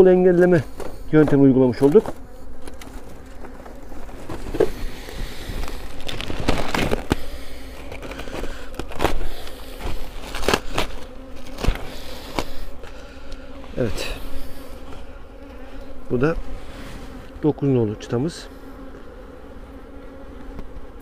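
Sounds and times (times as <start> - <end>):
honeybees humming: 0.0 - 21.0
wooden hive frames knocking: 0.2 - 16.2.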